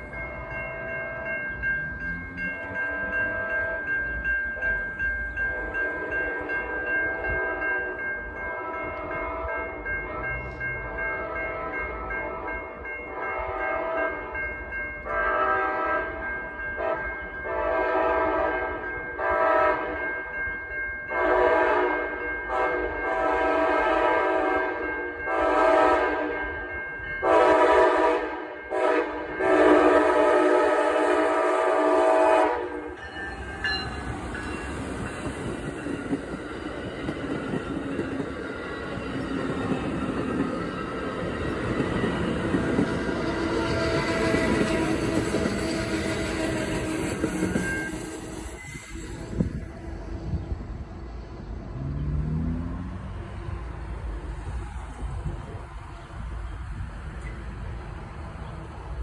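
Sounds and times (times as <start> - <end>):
locomotive horn blasts: 8.4 - 14.3, 15.0 - 16.2, 16.8 - 20.0, 21.1 - 26.4, 27.2 - 33.0
train wheels rumbling on rails: 21.1 - 59.0.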